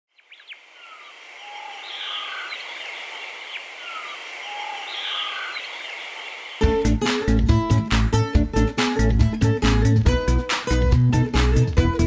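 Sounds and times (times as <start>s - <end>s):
guitar music: 6.6s - 12.0s.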